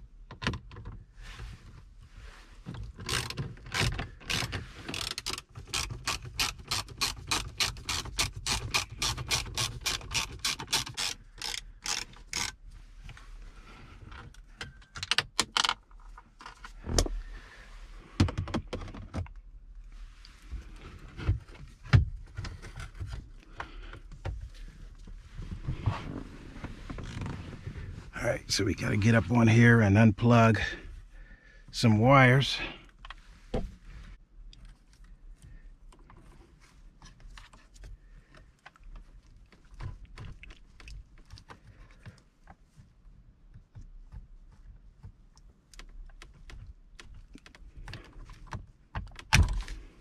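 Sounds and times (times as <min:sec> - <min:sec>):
ratchet clicking: 0:05.0 - 0:12.5.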